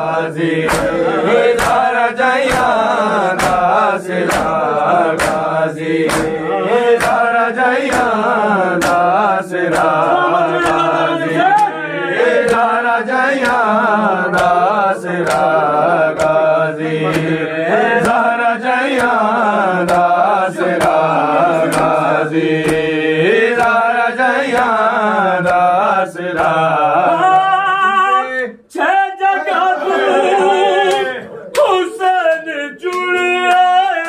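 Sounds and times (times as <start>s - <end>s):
men chanting a lament: 0.0s - 34.0s
chest-beating slaps: 0.4s - 11.8s, 12.4s - 17.4s, 18.0s - 24.8s.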